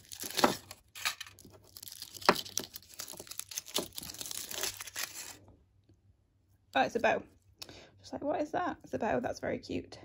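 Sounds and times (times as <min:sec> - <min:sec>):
foil wrapper crinkling: 0:00.0 - 0:05.5.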